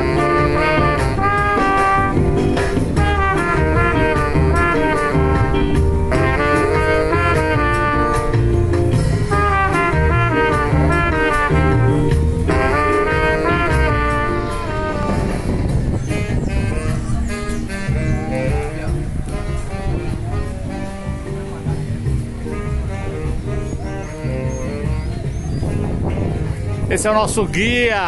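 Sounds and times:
bass-heavy backing from loudspeaker: 0.0s - 28.0s
trumpet and saxophone jazz melody: 0.0s - 28.0s.

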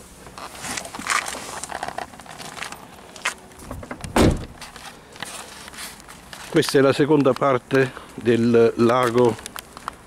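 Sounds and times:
footsteps on asphalt: 2.4s - 10.0s
loud dull thump: 3.7s - 4.6s.

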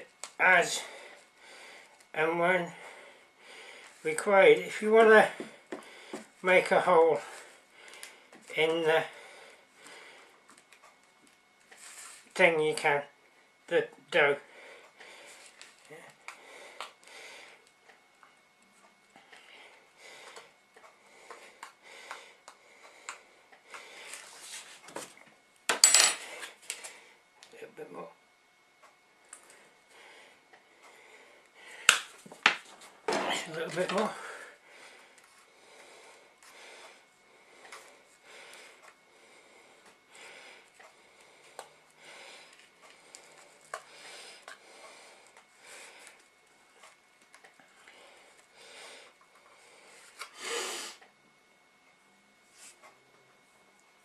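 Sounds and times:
person breathing: 0.8s - 2.0s, 2.7s - 4.1s, 5.4s - 6.4s, 7.2s - 8.4s, 9.0s - 10.4s, 14.4s - 17.7s, 19.2s - 24.8s, 29.4s - 32.1s, 34.0s - 46.3s, 47.6s - 51.0s.

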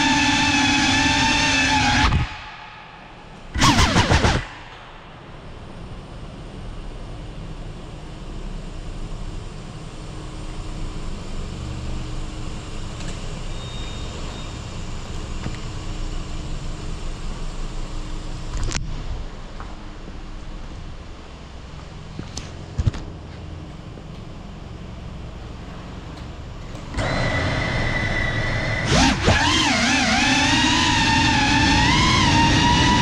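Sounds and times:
loud burst: 0.0s - 6.0s
car engine and tyre rumble echoing: 0.0s - 33.0s.

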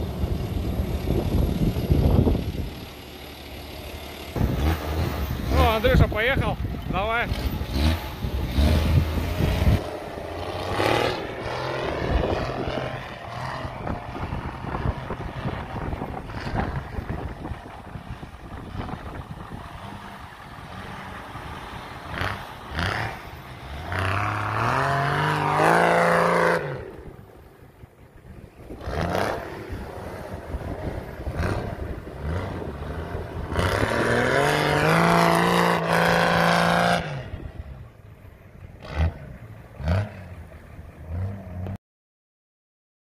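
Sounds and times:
engine revving: 0.0s - 27.2s, 28.6s - 37.8s, 38.7s - 41.8s.

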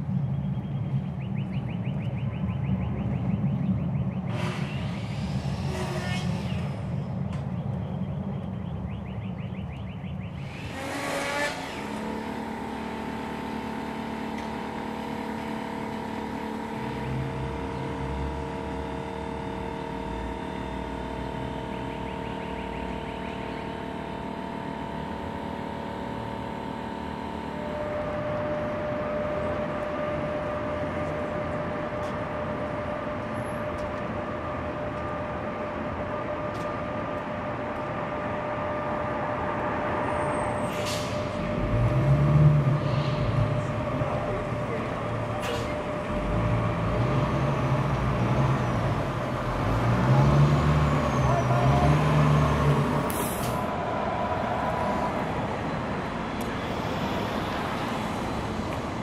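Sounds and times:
hum with higher tone: 10.1s - 49.6s, 51.3s - 58.6s
machinery hum with held tones: 11.5s - 47.9s.

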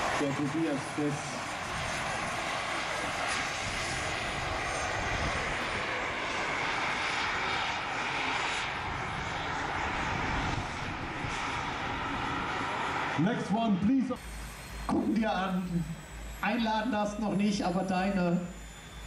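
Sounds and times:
model helicopter turbine whine: 0.0s - 19.0s
thin high tone: 14.0s - 19.0s.

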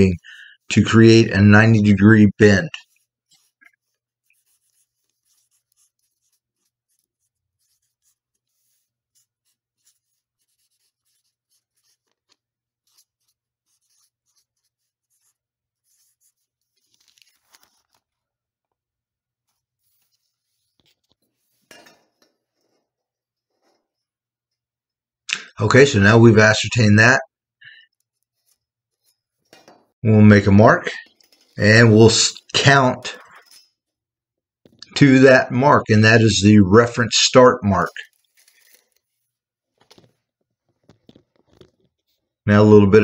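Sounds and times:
marker pen scratching on paper: 0.0s - 18.3s, 19.3s - 24.6s, 27.7s - 29.6s, 37.8s - 42.4s.

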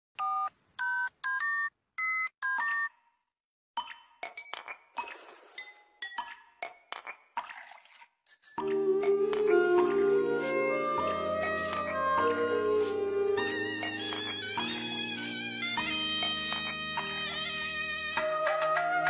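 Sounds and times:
music: 8.6s - 19.0s.

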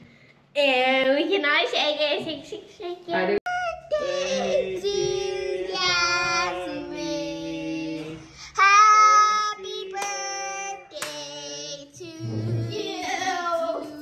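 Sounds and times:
child singing held notes: 3.6s - 14.0s.

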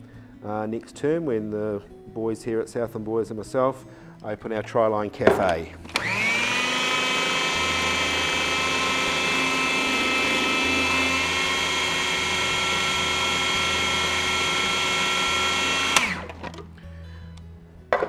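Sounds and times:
food processor motor whining: 5.9s - 16.7s.

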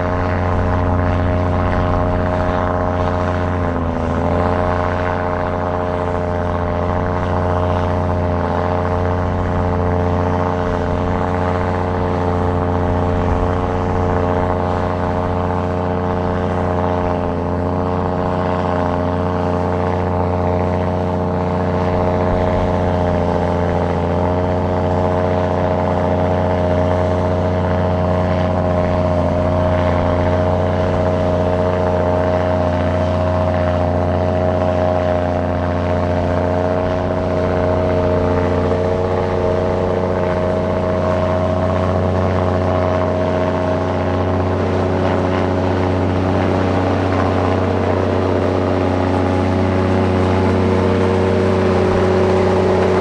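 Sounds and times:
diesel engine droning: 0.0s - 53.0s.

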